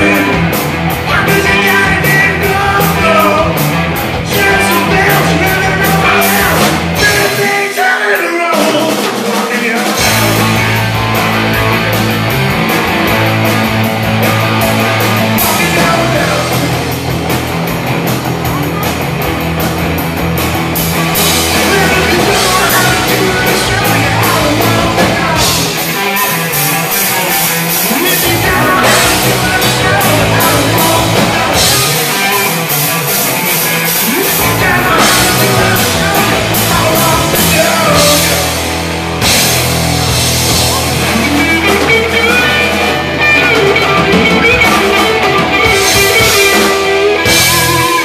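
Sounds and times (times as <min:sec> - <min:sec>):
drum kit: 0:00.0 - 0:48.0
electric guitars: 0:00.0 - 0:48.0.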